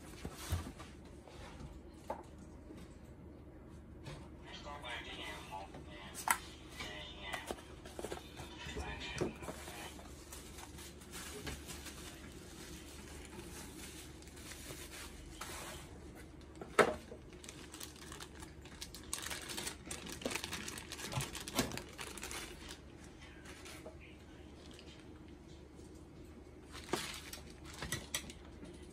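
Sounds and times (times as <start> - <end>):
plastic packaging crackling: 9.4 - 15.6, 16.3 - 22.9, 26.6 - 28.4.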